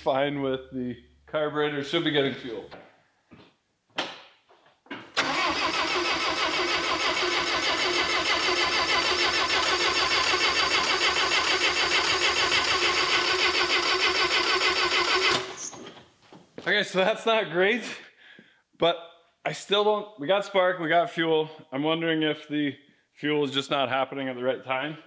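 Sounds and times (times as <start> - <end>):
engine cranking by starter: 5.2 - 15.7.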